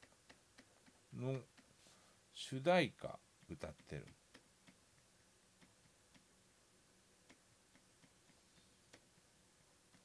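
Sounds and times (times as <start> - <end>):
stylus tapping on tablet: 0.0 - 1.7, 3.4 - 6.3, 7.2 - 9.3.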